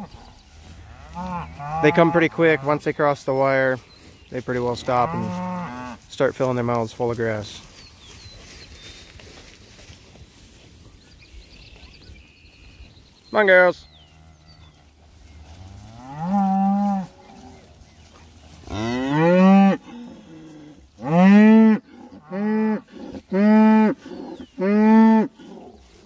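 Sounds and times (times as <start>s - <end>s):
cattle mooing: 0.8s - 2.7s, 5.0s - 6.0s, 18.7s - 25.7s.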